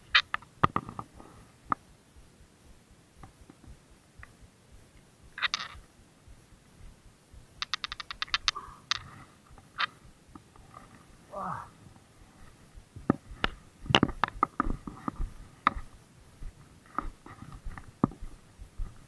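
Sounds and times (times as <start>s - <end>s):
fishing tackle clicking: 7.6s - 9.1s.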